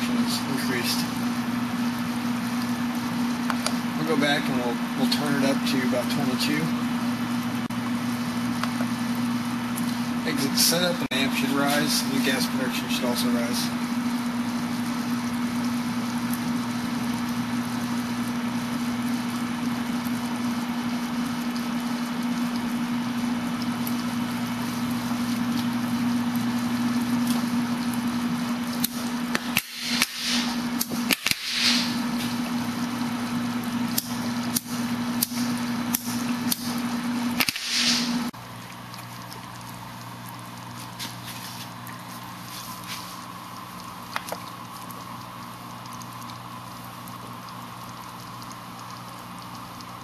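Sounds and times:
electrolysis cell fizzing: 0.0s - 50.0s
low electrical hum: 0.0s - 50.0s.

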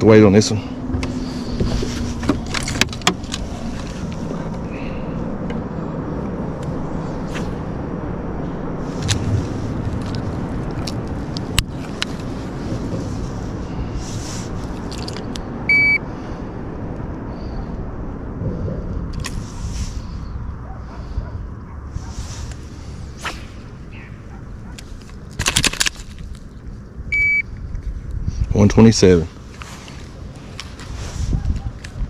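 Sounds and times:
steady low rumble: 0.0s - 32.0s
fishing rod swishing through air: 21.9s - 24.2s.

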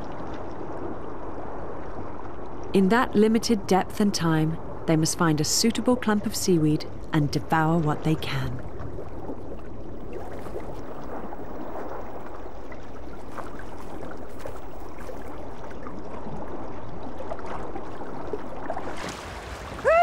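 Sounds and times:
sea water rushing: 6.1s - 20.0s.

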